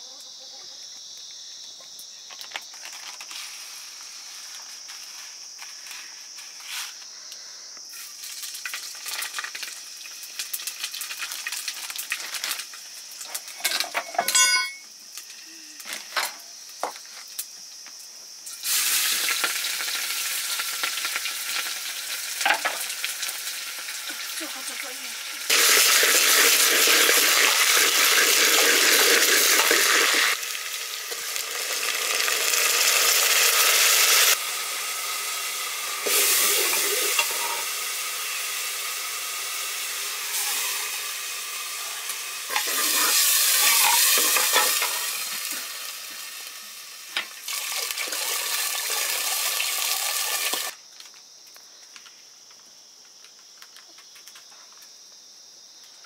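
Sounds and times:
food sizzling in hot oil: 0:07.9 - 0:15.4, 0:18.4 - 0:50.8.

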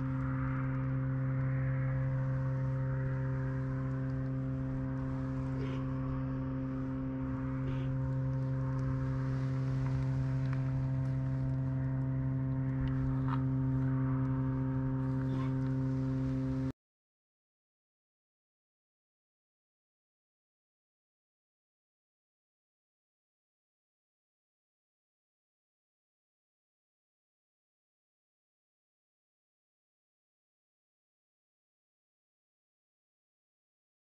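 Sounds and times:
faint ticks and rustles: 0:00.0 - 0:16.7
steady low hum: 0:00.0 - 0:16.8.

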